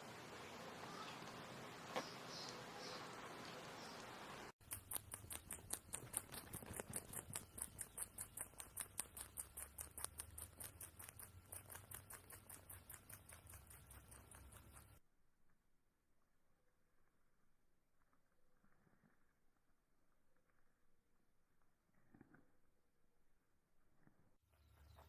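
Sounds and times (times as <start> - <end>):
rabbit chewing crunching: 0.1 - 15.0, 24.0 - 25.0.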